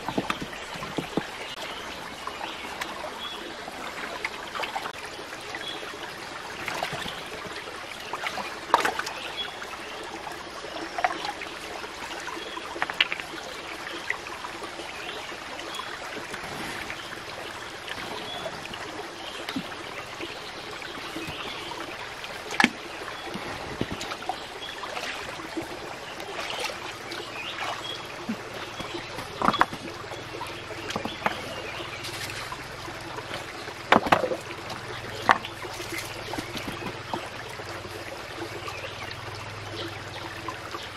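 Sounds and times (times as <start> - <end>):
stones knocking in water: 0.0 - 1.5, 12.8 - 13.4, 28.6 - 30.1, 30.7 - 32.6, 33.2 - 37.2
stream water trickling: 0.0 - 40.9.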